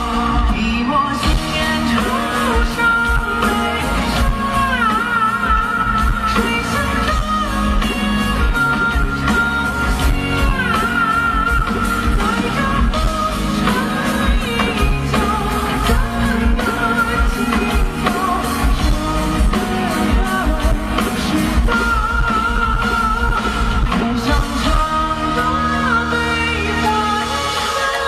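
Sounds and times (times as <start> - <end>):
band accompaniment: 0.0 - 28.0
man singing into microphone: 0.0 - 28.0.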